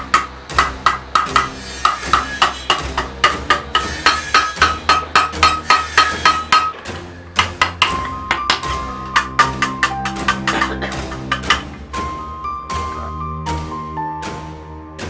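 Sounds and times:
hammer tapping sheet metal: 0.0 - 11.8.

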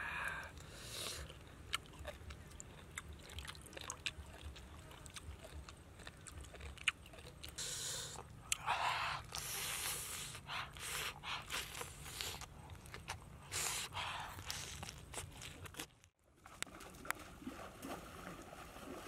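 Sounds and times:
crunchy biting: 1.0 - 16.1.

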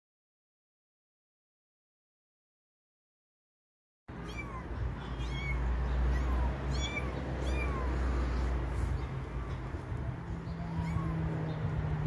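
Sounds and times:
kittens mewing: 4.1 - 11.8.

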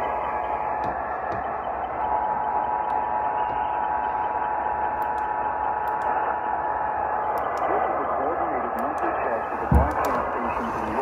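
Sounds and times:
radio static hiss: 7.2 - 11.0.

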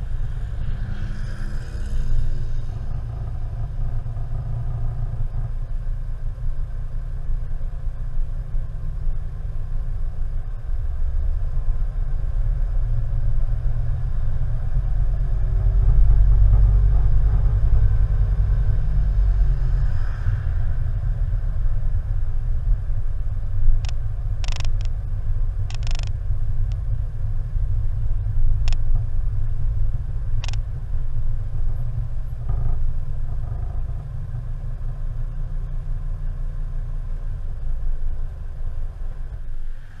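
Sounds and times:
road and wind rumble: 0.0 - 40.0
sharp clicks and knocks: 23.8 - 25.0, 25.7 - 26.8, 30.4 - 30.7.

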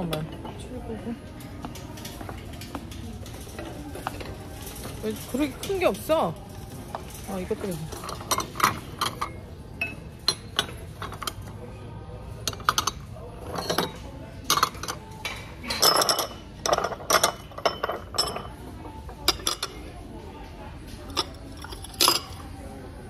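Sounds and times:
ceramic plates clinking: 6.9 - 11.5, 12.4 - 19.9.

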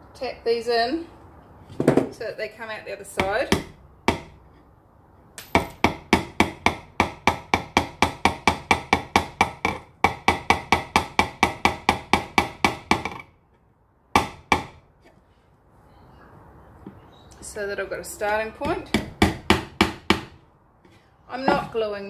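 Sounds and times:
hammer striking a nail: 3.2 - 4.4, 5.4 - 13.3, 14.1 - 14.8, 18.6 - 20.4.

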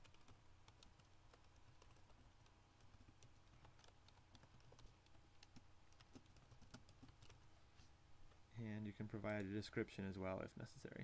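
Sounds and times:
computer keyboard typing: 0.0 - 7.5
low steady hum: 0.0 - 11.0.

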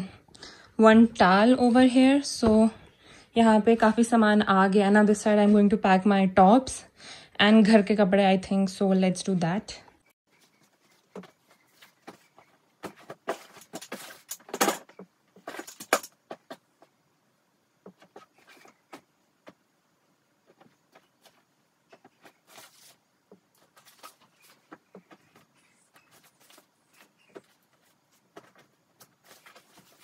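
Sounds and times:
clothes and packaging rustling: 10.3 - 17.0, 17.8 - 19.6, 20.4 - 30.0.

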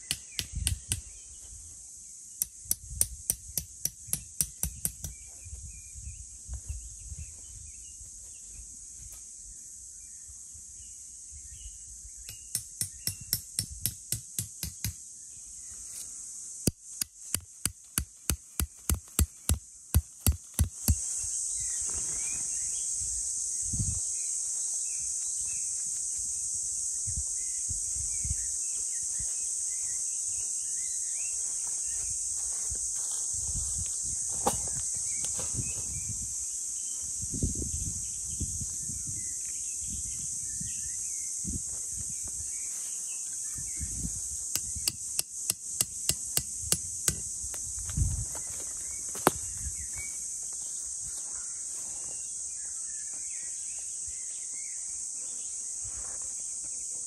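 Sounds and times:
high insect drone: 0.0 - 57.0
axe striking metal stakes: 12.3 - 15.0.

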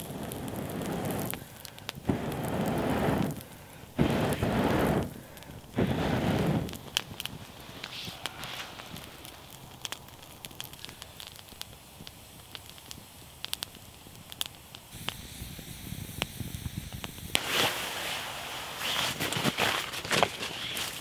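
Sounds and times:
campfire crackling and popping: 0.0 - 21.0
loud rustling: 18.7 - 21.0.

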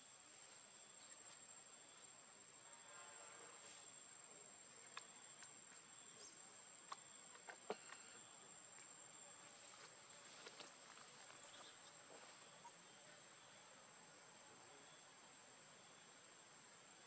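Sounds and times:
high-pitched insect trill: 0.0 - 17.0.

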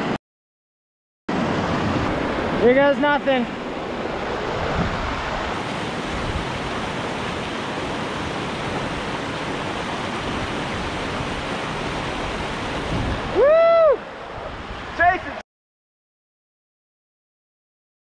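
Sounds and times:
whitewater rapids rushing: 1.3 - 15.4.

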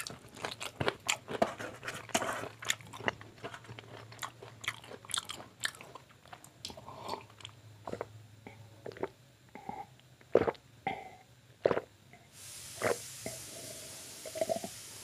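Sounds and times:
steady hiss: 12.3 - 15.0.

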